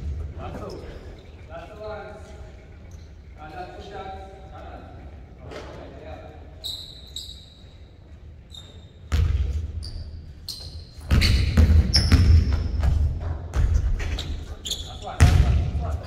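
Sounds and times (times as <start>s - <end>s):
sneakers squeaking on court: 6.6s - 15.6s
basketball bouncing on hardwood floor: 11.1s - 14.0s.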